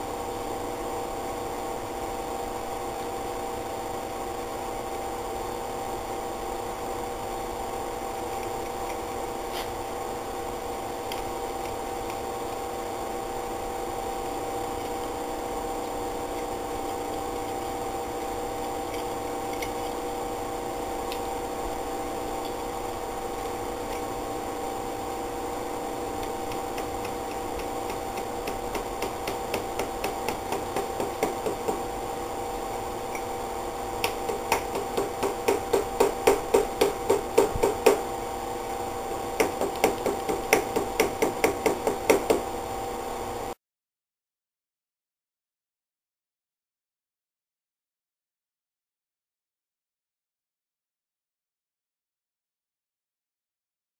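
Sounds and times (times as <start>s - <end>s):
steady hum: 0.0s - 43.6s
hammer tapping wooden block: 26.2s - 31.8s, 34.0s - 38.0s, 39.4s - 42.5s.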